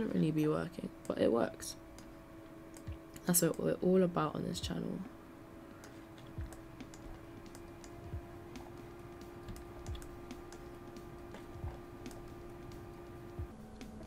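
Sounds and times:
faint steady hum: 0.0 - 14.0
keyboard and mouse clicks: 2.7 - 3.7, 5.7 - 8.7, 9.4 - 12.4.

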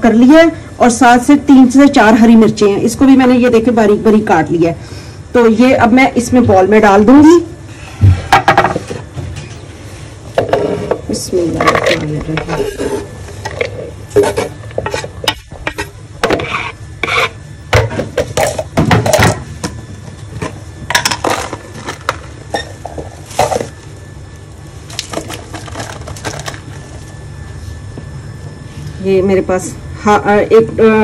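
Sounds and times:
scraping on wooden board: 14.2 - 17.4.

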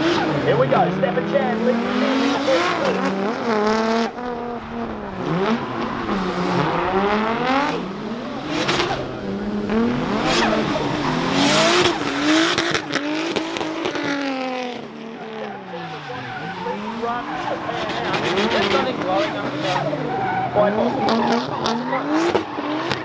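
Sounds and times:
car engines revving: 0.0 - 23.0
tyres squealing: 14.8 - 23.0.

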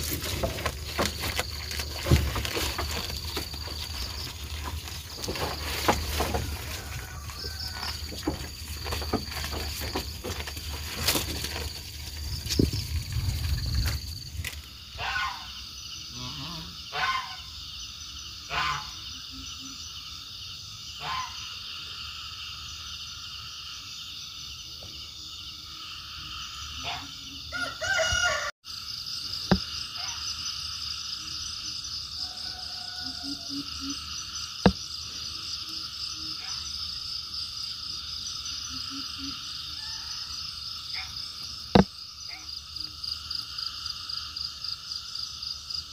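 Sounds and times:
frogs calling: 0.0 - 45.9
insects calling: 0.0 - 45.9
fowl calls: 15.0 - 15.5, 16.3 - 17.5, 18.5 - 19.0.

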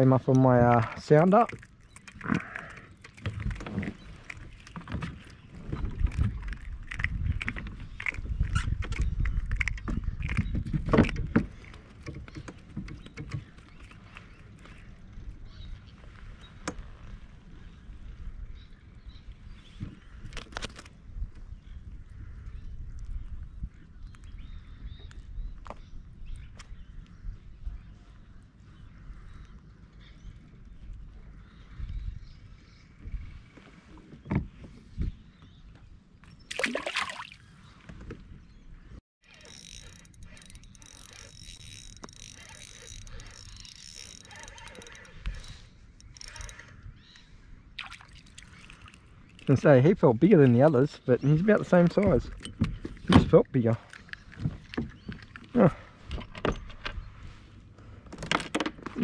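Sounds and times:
wind noise: 3.2 - 13.4
light water noise: 36.2 - 38.0, 39.2 - 50.8, 51.5 - 56.2
fish splashing: 36.5 - 37.5, 47.8 - 49.5.

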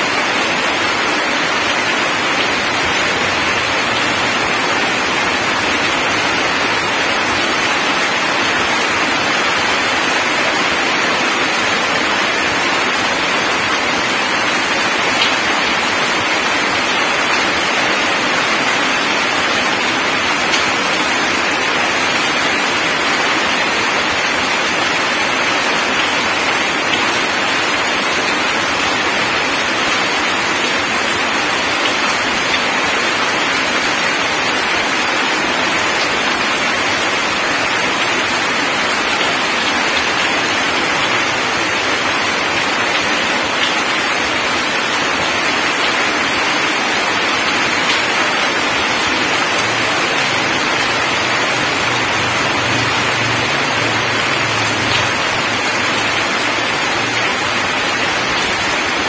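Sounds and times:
heavy rain on gravel: 0.0 - 59.0.

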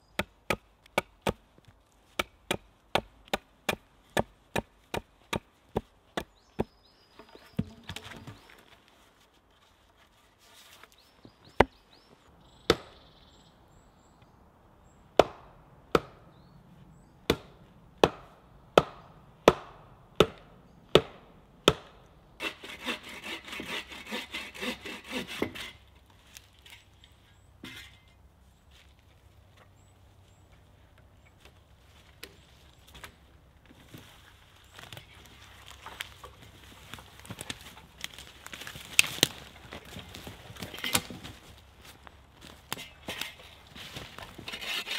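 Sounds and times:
axe chopping wood: 0.2 - 1.4, 2.1 - 6.7, 12.7 - 13.0, 15.2 - 16.2, 17.3 - 22.6
rasping strokes on wood: 22.4 - 25.8, 44.5 - 44.9.

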